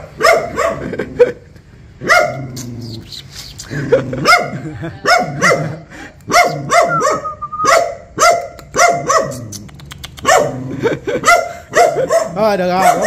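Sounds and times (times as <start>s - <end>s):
dog barking: 0.0s - 1.0s, 2.0s - 2.5s, 4.2s - 9.5s, 10.2s - 13.0s.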